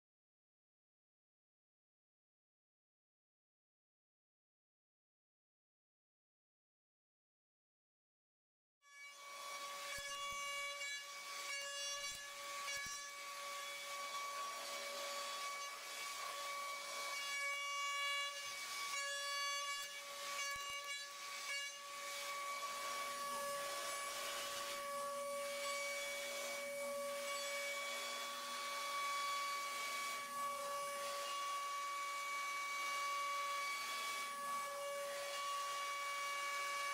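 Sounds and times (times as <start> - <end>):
metal cutting noise: 8.9 - 36.9.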